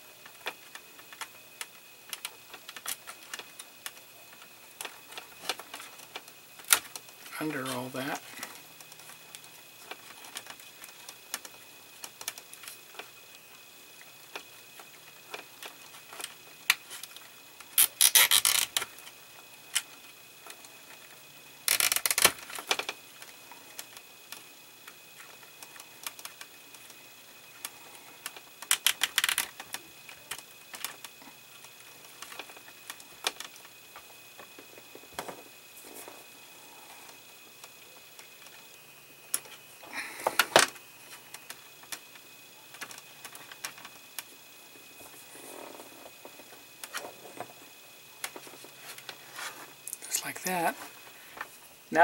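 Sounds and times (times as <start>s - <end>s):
cable tie ratchet clicking: 14.3s - 19.0s, 21.6s - 26.9s, 27.6s - 33.7s.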